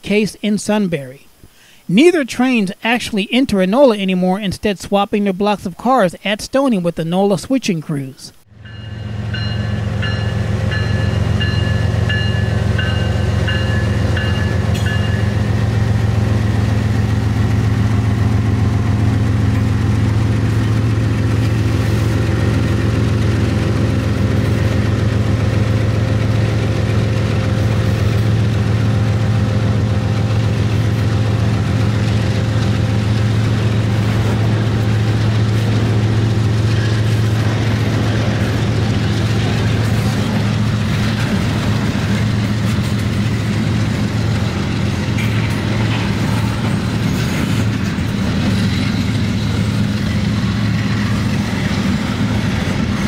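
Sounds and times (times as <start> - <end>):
locomotive engines humming: 0.0 - 53.0
locomotive bell ringing: 8.5 - 16.6
rail cars rumbling by: 8.5 - 53.0.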